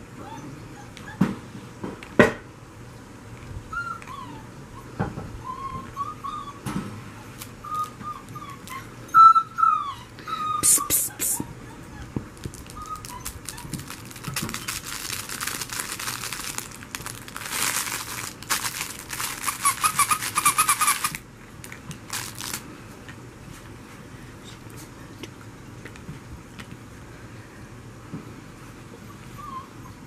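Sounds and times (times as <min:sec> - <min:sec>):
puppy chewing toys: 0:11.4 - 0:22.6
crinkly rustling: 0:12.4 - 0:22.6.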